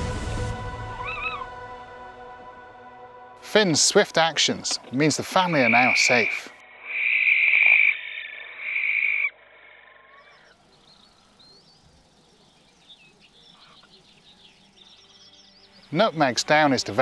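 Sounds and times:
barn owl screeching: 0:01.0 - 0:01.5, 0:05.7 - 0:10.6.

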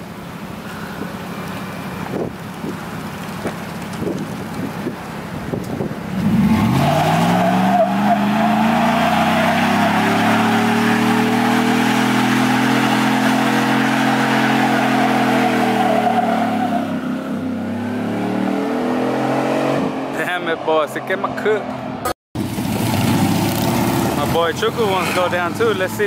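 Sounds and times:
truck engine revving: 0:05.5 - 0:26.0
tyres squealing on pavement: 0:06.5 - 0:17.4, 0:23.1 - 0:26.0.

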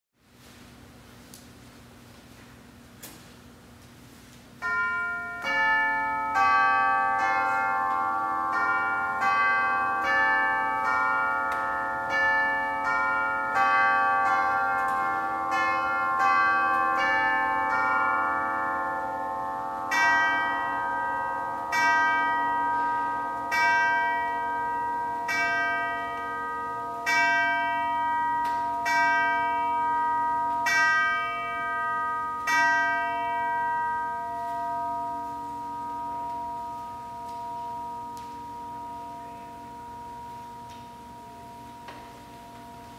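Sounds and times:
clock chime melody: 0:04.6 - 0:42.9
clock striking the hour: 0:04.6 - 0:42.9.

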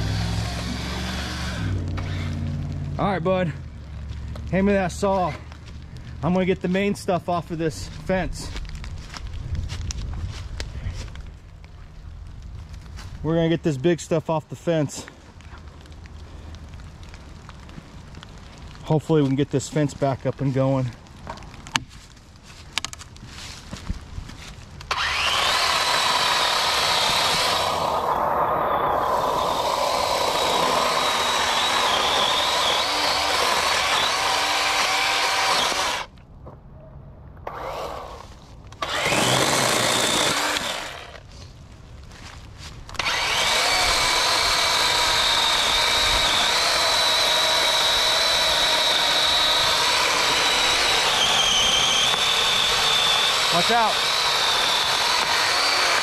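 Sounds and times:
chainsaw cutting wood: 0:00.0 - 0:02.8, 0:24.8 - 0:36.1, 0:37.4 - 0:41.3, 0:42.9 - 0:56.0
faint crackles: 0:01.7 - 0:24.9, 0:39.7 - 0:43.0
wind rumble: 0:07.5 - 0:13.3, 0:27.1 - 0:31.5.

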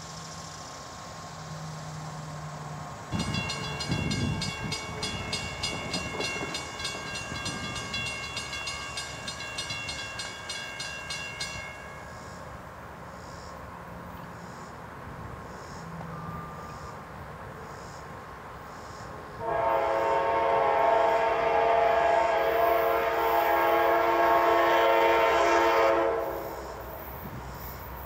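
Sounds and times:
crossing warning bell dinging: 0:03.1 - 0:12.6, 0:15.9 - 0:17.1.

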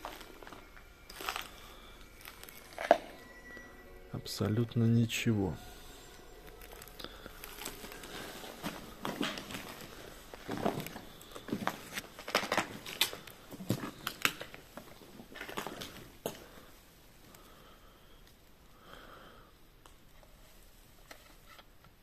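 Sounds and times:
footsteps crunching over rubble: 0:00.0 - 0:03.2, 0:06.6 - 0:16.5.

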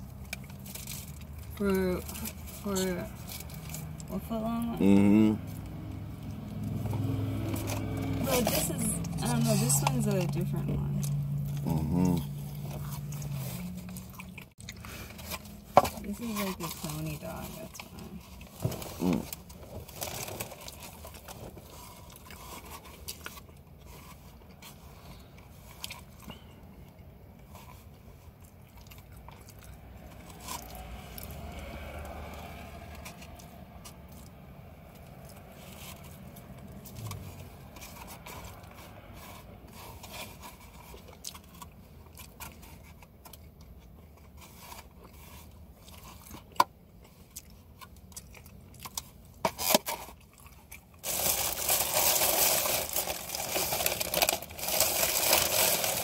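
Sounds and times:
person chewing food: 0:00.0 - 0:01.6, 0:11.0 - 0:15.8, 0:17.8 - 0:56.0.

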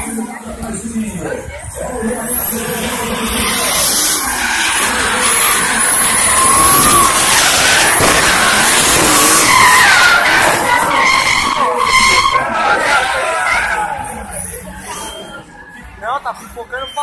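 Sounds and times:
tyres screeching: 0:02.1 - 0:15.6
engine revving high: 0:02.3 - 0:14.1.

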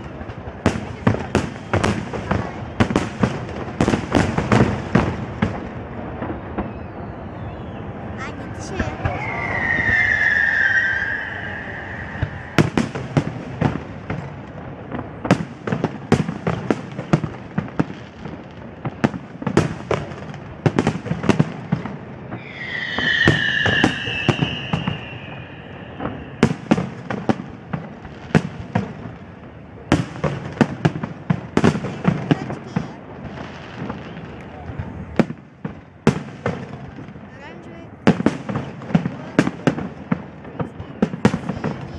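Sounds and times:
fireworks bursting: 0:00.0 - 0:37.4
falling firework whistle: 0:06.2 - 0:13.8, 0:22.3 - 0:27.9.

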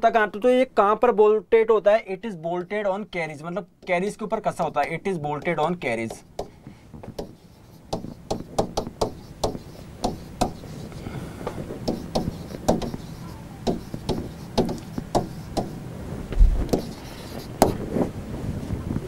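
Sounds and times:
pen tapping on whiteboard: 0:05.4 - 0:10.8, 0:11.8 - 0:15.8, 0:16.6 - 0:17.8.

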